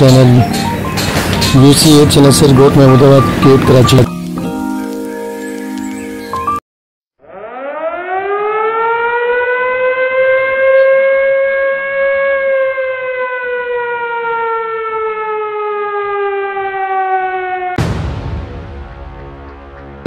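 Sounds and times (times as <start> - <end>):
siren wailing: 7.2 - 17.8.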